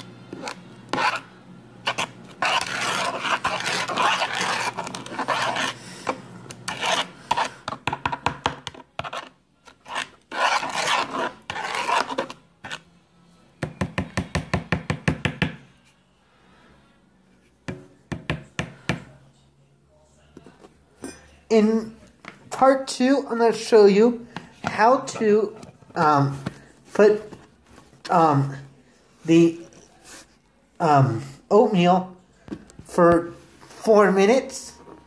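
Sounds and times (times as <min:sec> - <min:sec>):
metal spoon scraping a bowl: 0:00.0 - 0:12.8.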